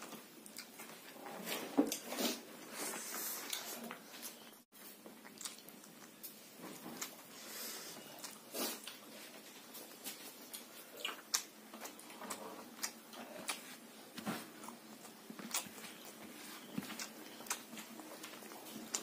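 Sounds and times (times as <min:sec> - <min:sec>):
chewing and wet mouth smacks: 0:05.2 - 0:06.4, 0:10.0 - 0:13.7, 0:14.6 - 0:19.0.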